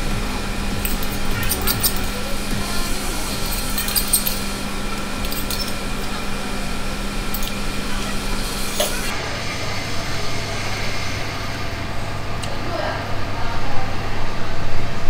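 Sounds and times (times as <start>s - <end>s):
steady background hum: 0.0s - 15.0s
spoon clinking against steel bowl: 3.3s - 4.6s, 5.2s - 6.2s.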